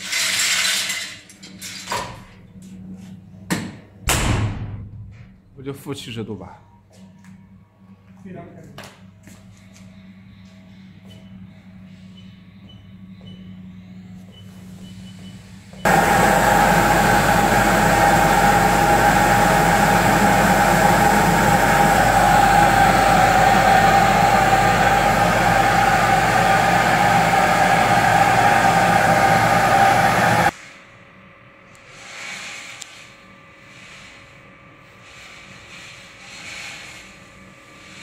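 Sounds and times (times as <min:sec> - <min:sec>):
machine whirring with constant whine: 0:09.3 - 0:30.7.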